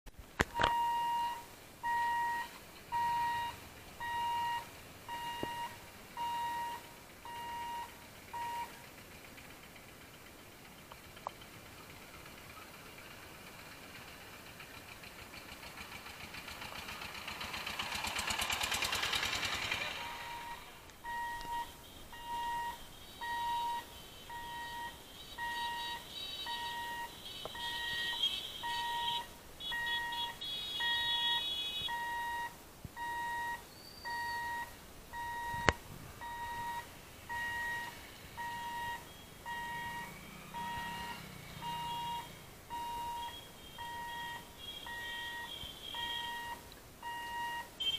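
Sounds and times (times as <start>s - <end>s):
two-tone warning beeps: 0.6s - 8.7s, 20.0s - 47.9s
three-wheeler engine passing: 0.8s - 47.9s.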